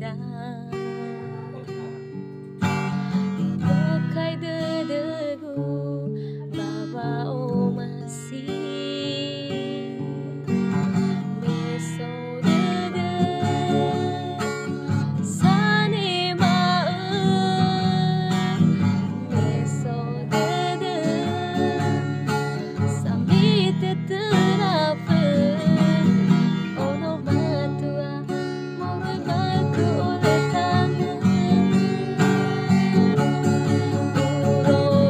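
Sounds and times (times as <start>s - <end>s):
woman singing: 0.0s - 2.0s, 3.1s - 35.0s
strummed acoustic guitar: 0.0s - 35.0s.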